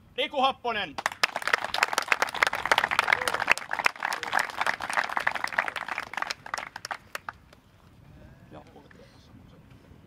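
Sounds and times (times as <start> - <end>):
group clapping in applause: 1.0 - 7.6.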